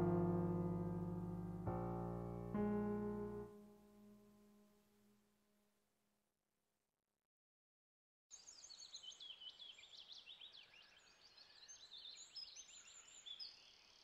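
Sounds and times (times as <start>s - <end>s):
small birds chirping and singing: 8.3s - 14.0s.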